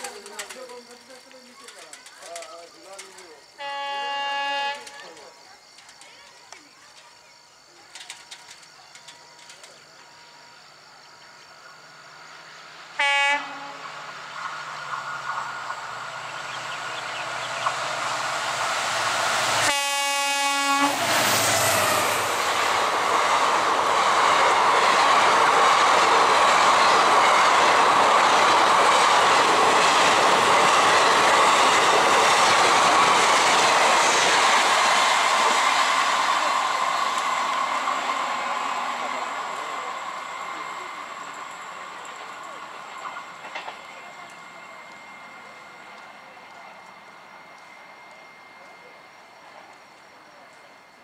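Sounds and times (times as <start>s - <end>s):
diesel locomotive approaching: 0.0s - 51.0s
wheels rushing on rail: 0.0s - 51.0s
train horn: 3.6s - 5.1s, 13.0s - 14.0s, 19.5s - 22.2s.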